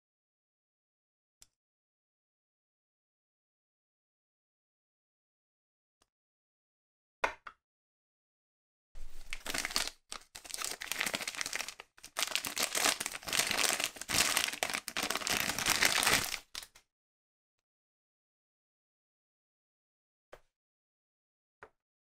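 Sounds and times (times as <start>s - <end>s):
plastic bag crinkling: 9.0s - 16.7s.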